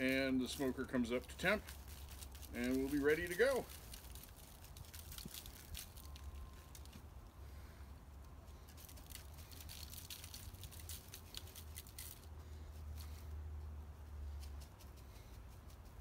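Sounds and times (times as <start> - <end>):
plastic shaker jar rattling: 0.5 - 6.9, 8.7 - 12.2.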